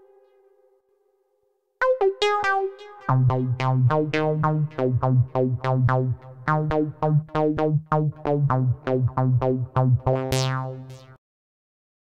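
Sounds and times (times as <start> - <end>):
low synth bass: 3.1 - 11.2
synthesizer acid lead line: 3.1 - 11.2.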